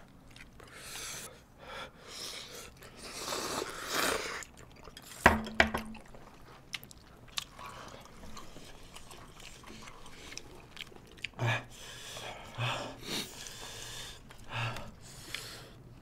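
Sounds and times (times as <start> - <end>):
people slurping noodles: 2.2 - 4.5.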